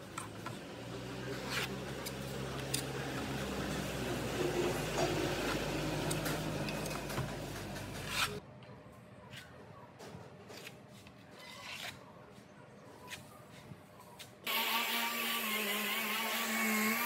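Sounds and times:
hands rubbing and scraping parts: 0:01.2 - 0:08.4, 0:09.3 - 0:14.4.

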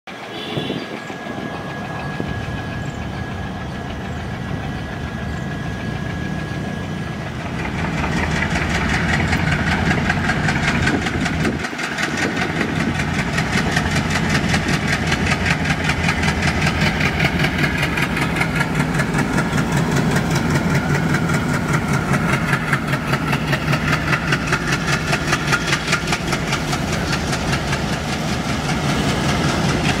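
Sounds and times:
thin steady whine: 0:00.1 - 0:09.8
diesel locomotive chugging: 0:00.1 - 0:30.0.

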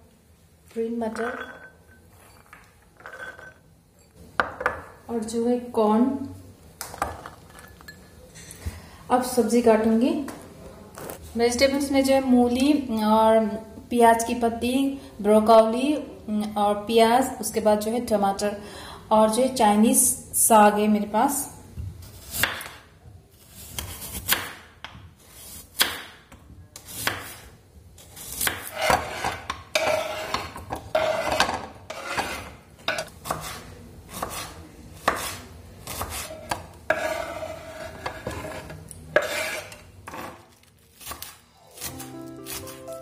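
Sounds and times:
knife scraping board: 0:28.1 - 0:42.0
knife chopping on wooden board: 0:34.2 - 0:37.2.

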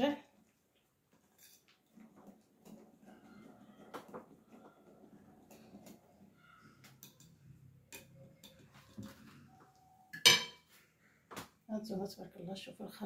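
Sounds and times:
soft stirring of batter: 0:00.2 - 0:10.0.

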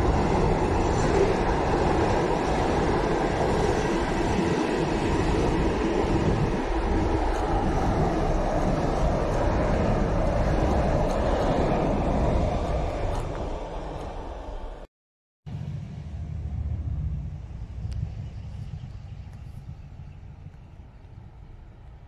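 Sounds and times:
freight train wheels on rail: 0:00.0 - 0:14.9, 0:15.5 - 0:22.0.

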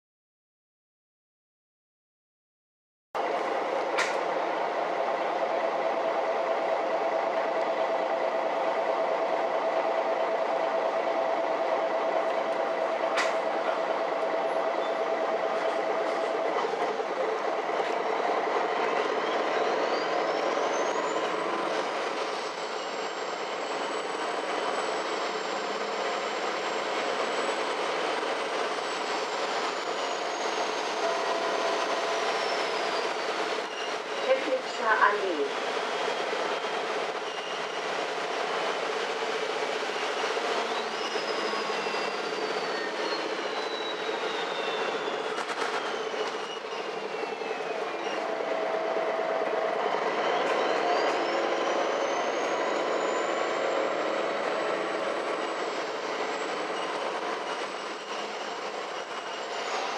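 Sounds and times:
bus diesel engine running: 0:03.2 - 0:32.3
sharp click: 0:04.0 - 0:04.2, 0:13.2 - 0:13.4.

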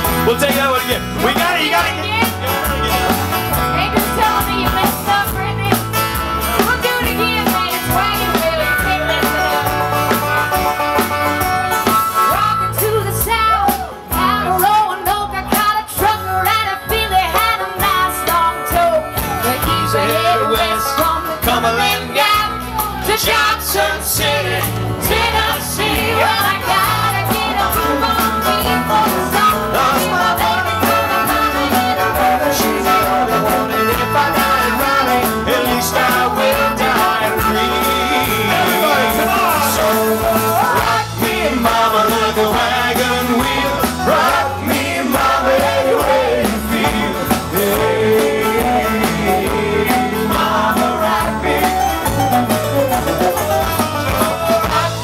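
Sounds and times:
acoustic guitars: 0:00.0 - 0:55.0
electric bass: 0:00.0 - 0:55.0
keyboard: 0:00.0 - 0:55.0
person singing: 0:26.2 - 0:44.2.

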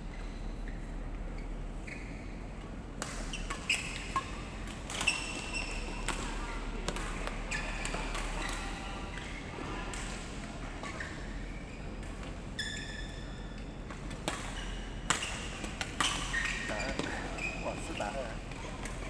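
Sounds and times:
shoes squeaking on court: 0:00.1 - 0:19.0
racket hitting shuttlecock: 0:03.0 - 0:08.6, 0:14.0 - 0:17.0.

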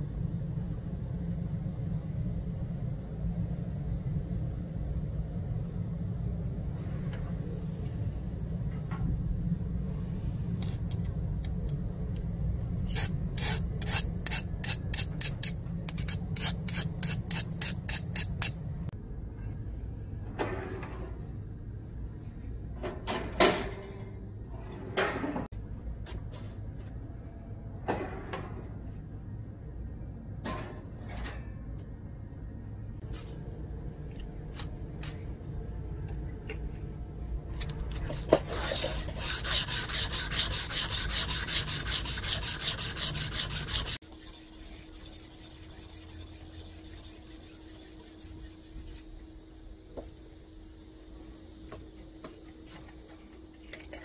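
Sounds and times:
scraping strokes on knife blade: 0:12.8 - 0:18.7, 0:38.0 - 0:49.2
hand-sanding with abrasive paper: 0:38.5 - 0:49.0.

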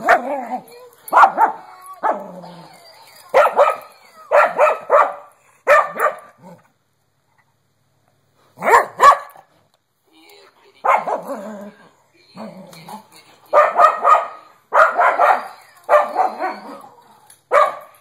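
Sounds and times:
dog barking and yipping: 0:00.0 - 0:02.3, 0:03.2 - 0:06.4, 0:08.6 - 0:09.4, 0:10.8 - 0:11.4, 0:13.5 - 0:18.0.

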